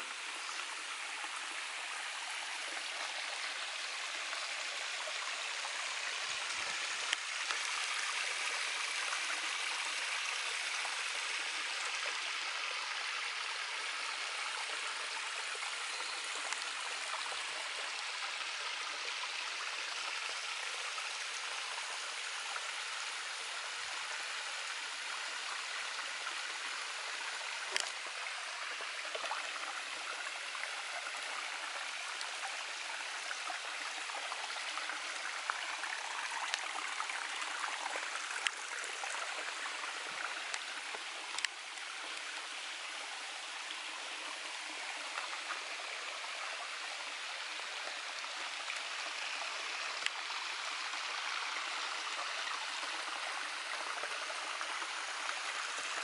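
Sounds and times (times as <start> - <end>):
stream running over stones: 0.0 - 56.0
faint clicks: 41.3 - 42.2.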